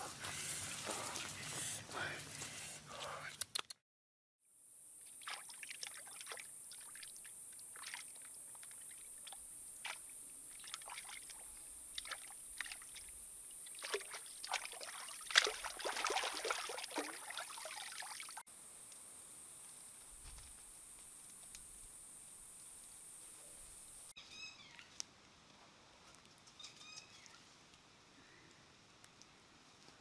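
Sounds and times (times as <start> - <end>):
water splashing and sloshing: 5.1 - 18.4.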